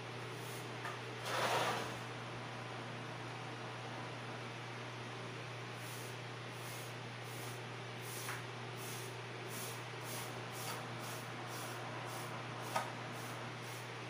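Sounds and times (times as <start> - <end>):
hiss: 5.8 - 13.9.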